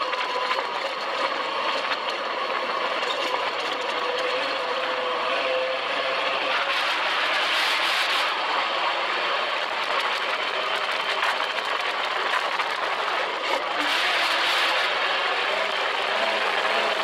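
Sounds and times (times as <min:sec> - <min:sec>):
dune buggy engine running: 0:00.0 - 0:17.0.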